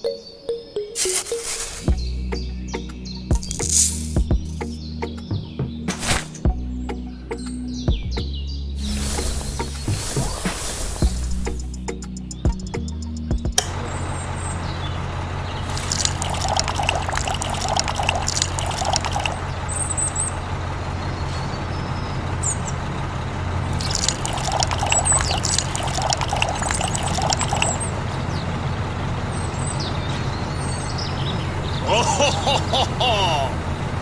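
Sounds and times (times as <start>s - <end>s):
water sloshing in mixer drum: 15.7s - 19.4s, 23.8s - 27.8s.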